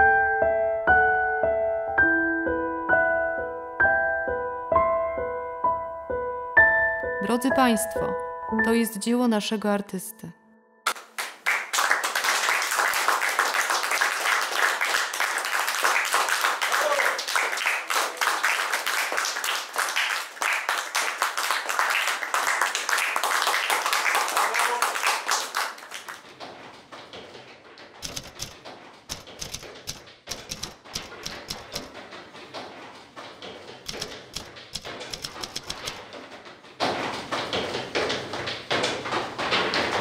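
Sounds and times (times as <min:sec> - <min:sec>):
audience applauding: 0:10.9 - 0:26.3.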